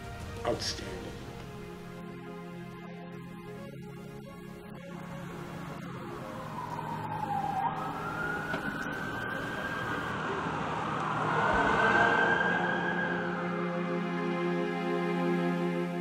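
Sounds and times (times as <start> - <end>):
street traffic: 0.0 - 16.0
siren wailing: 4.7 - 16.0.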